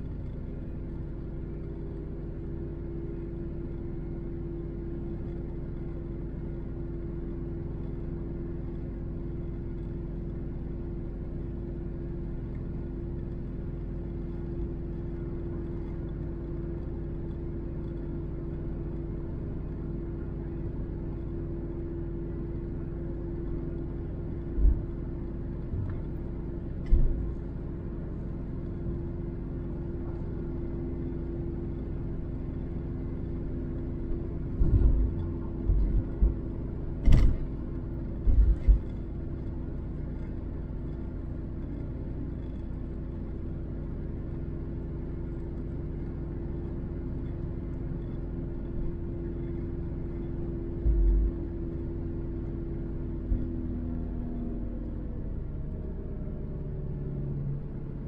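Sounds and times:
engine and road noise drone: 0.0 - 58.0
low hum: 0.0 - 58.0
low thumps: 34.6 - 37.5, 50.8 - 51.5.

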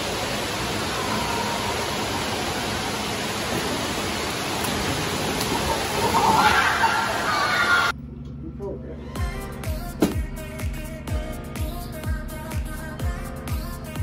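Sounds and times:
water rushing: 0.0 - 7.9.

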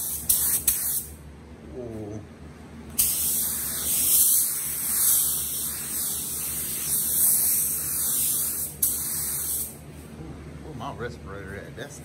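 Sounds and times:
paint spray gun hissing: 0.0 - 1.1, 3.0 - 9.8.

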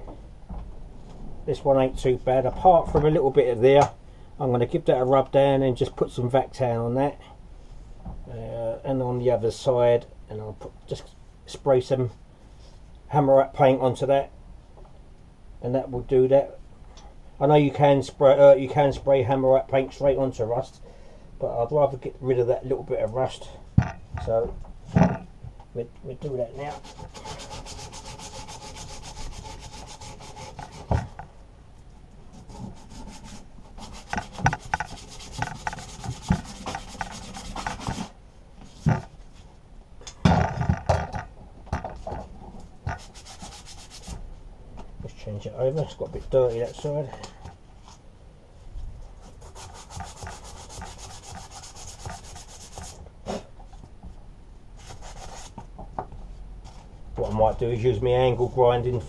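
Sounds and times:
sandpaper scratching rusty metal: 26.6 - 31.2, 32.4 - 38.2, 42.9 - 44.2, 49.2 - 53.0, 54.8 - 55.5
sharp knocks: 33.8 - 38.1.

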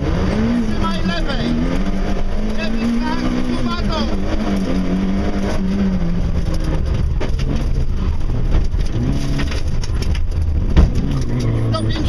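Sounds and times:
car engine revving: 0.0 - 12.0
knocks from rough road: 6.5 - 11.4.

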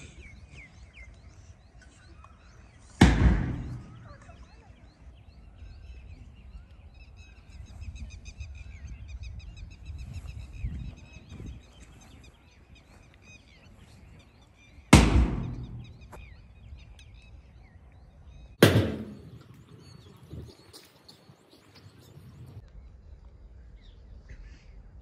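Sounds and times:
birds chirping: 0.0 - 24.8
loud thumps: 3.0 - 4.1, 14.9 - 16.2, 18.6 - 19.7.

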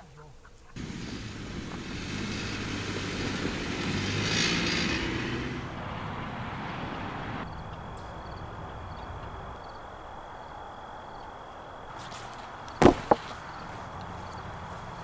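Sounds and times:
car driving by on gravel: 0.8 - 9.8, 12.8 - 15.0.

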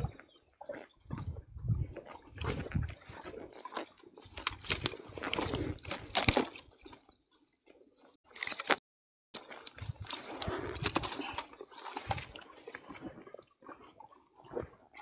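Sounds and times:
boots snapping dry twigs: 3.6 - 7.0, 8.3 - 8.8.

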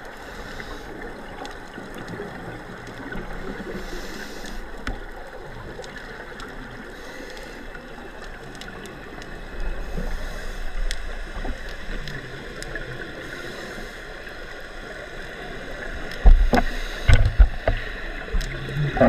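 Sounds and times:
faint clicks: 0.0 - 19.0
muffled underwater hiss: 0.0 - 19.0
regulator bubbles rumbling: 15.8 - 19.0.

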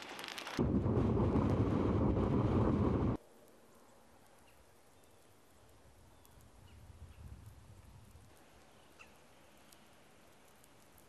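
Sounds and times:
soft low rumble: 0.6 - 3.2.

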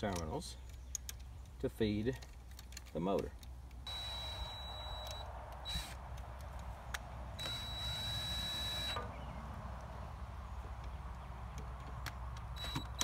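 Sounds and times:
cordless drill motor whine: 3.8 - 6.0, 7.3 - 9.1, 12.5 - 13.0.

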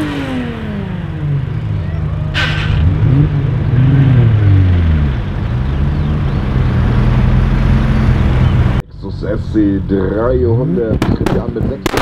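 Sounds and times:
car engine revs falling: 0.0 - 8.8
car engine running at low revs: 0.0 - 12.0.

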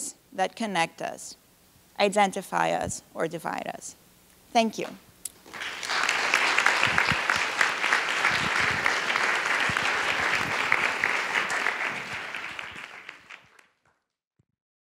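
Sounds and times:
audience applauding: 5.4 - 13.8.

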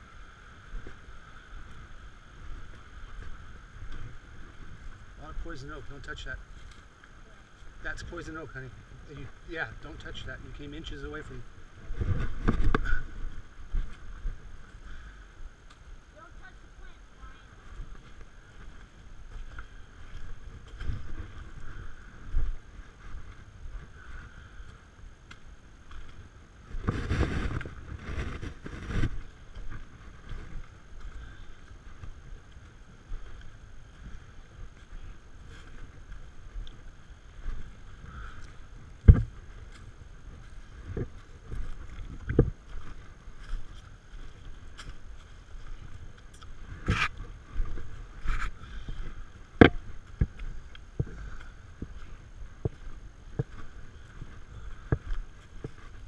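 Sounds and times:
rustle: 0.0 - 56.0
boots on rocky trail: 0.6 - 8.5, 9.1 - 15.8, 16.4 - 56.0
camera thumps and rubbing: 12.0 - 13.0, 46.8 - 47.2.

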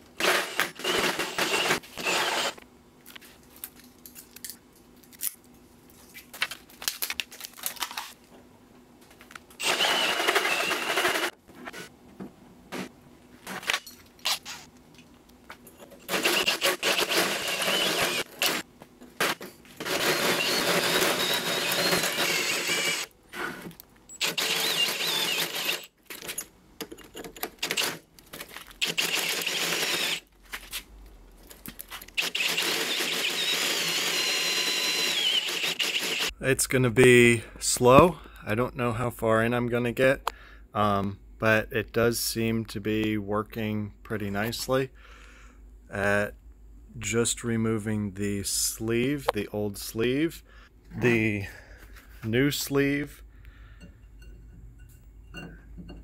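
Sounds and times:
drill hole saw cutting metal: 0.2 - 2.6, 9.6 - 11.3, 16.1 - 18.6, 19.8 - 23.1, 24.2 - 25.9, 28.8 - 30.2, 32.2 - 36.3.

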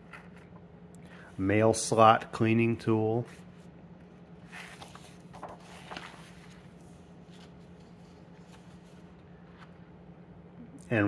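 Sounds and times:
steady low hum: 0.0 - 11.0
paper pages rustling: 3.3 - 9.8.

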